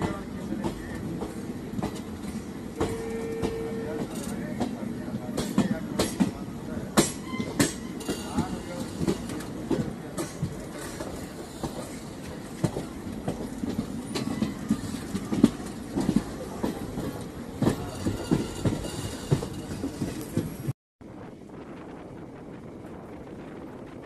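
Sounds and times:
train wheels rumbling on track: 0.0 - 24.0.

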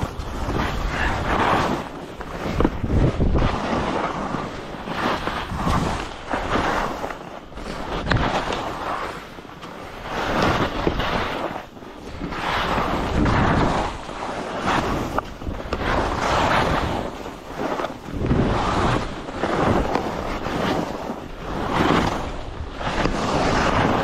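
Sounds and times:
skis scraping through snow: 0.0 - 24.0
wind rushing over microphone: 0.0 - 24.0.

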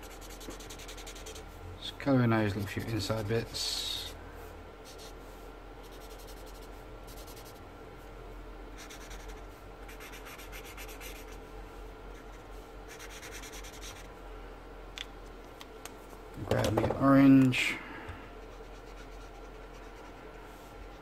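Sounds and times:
marker pen rubbing on paper: 0.0 - 1.4, 5.8 - 7.6, 8.8 - 11.4, 12.2 - 14.1, 18.4 - 21.0.

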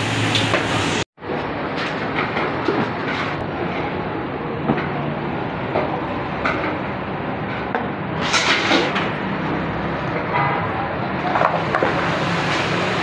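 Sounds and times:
steady background noise: 0.0 - 13.0.

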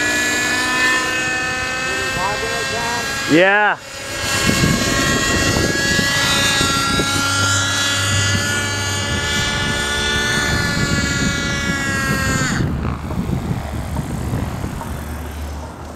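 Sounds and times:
model helicopter engine and rotor whine: 0.0 - 15.9.

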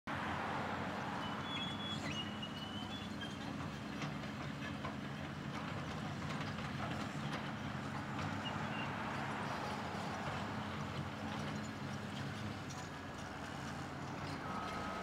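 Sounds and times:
bulldozer diesel engine running: 0.8 - 15.0.

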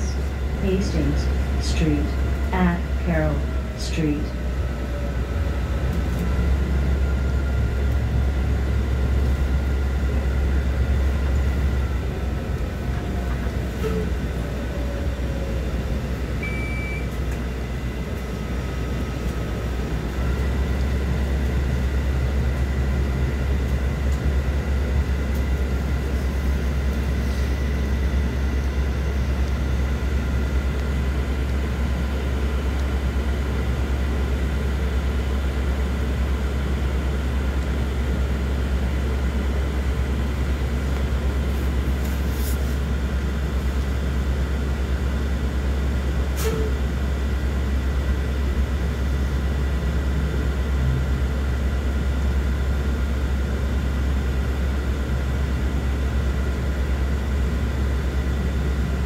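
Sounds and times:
bus rumbling: 0.0 - 59.0.

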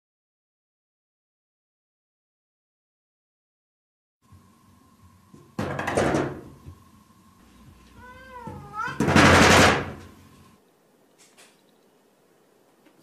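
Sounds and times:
cat meowing: 8.0 - 9.2.

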